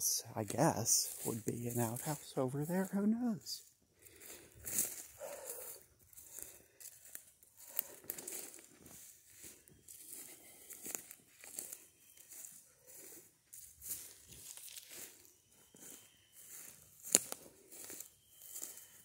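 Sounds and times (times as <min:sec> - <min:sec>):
footsteps crunching through dry leaves: 0:00.1 - 0:19.0.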